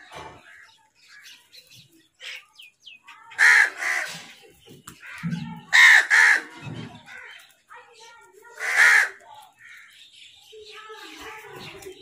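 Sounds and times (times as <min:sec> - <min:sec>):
crows cawing: 0:03.1 - 0:07.6, 0:08.5 - 0:10.1.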